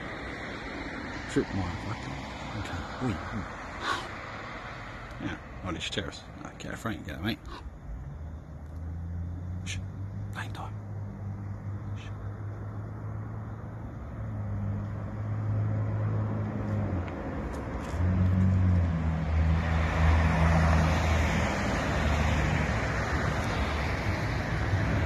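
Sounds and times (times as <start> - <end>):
jet airliner approaching: 18.9 - 25.0.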